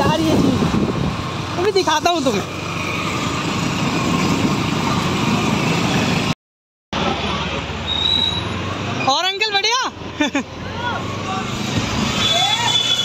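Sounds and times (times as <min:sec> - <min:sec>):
wind on microphone: 0:00.0 - 0:01.3.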